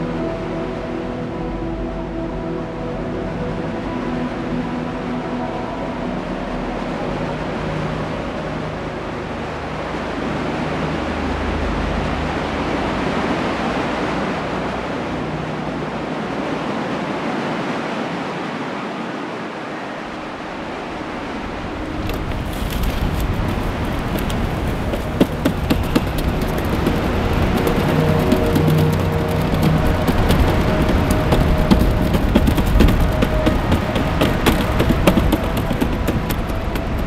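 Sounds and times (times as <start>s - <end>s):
low music drone: 0.0s - 17.5s, 20.3s - 37.0s
ocean surf rushing: 0.0s - 37.0s
sharp crackling: 21.8s - 37.0s.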